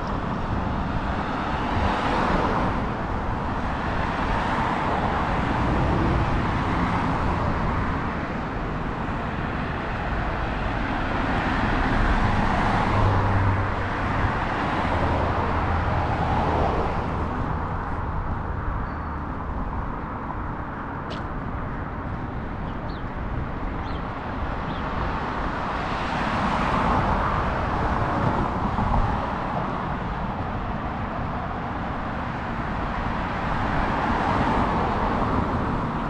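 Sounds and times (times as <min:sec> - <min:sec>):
cars passing: 0:00.0 - 0:36.0.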